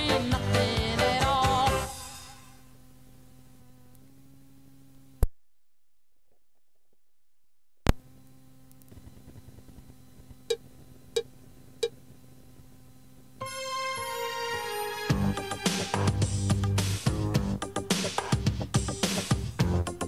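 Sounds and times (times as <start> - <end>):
cassette tape hiss: 0.0 - 5.4, 7.9 - 20.0
low hum: 0.0 - 14.2.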